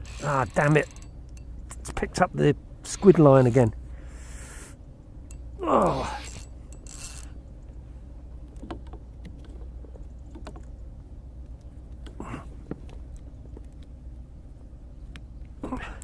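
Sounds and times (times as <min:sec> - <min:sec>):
fishing reel clicking: 0:00.0 - 0:01.4, 0:06.2 - 0:07.4
person grunting: 0:05.6 - 0:06.3.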